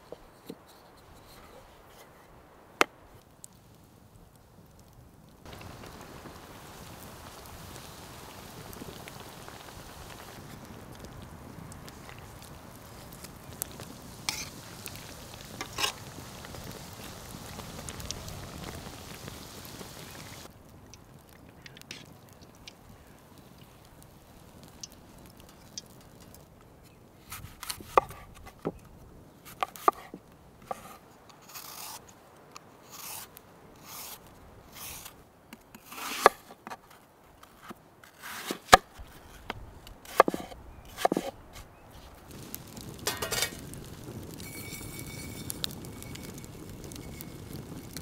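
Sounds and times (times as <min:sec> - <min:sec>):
vegetable peeler scraping apple: 0:30.7 - 0:32.0
frying pan scraping on metal plate: 0:43.1 - 0:43.6.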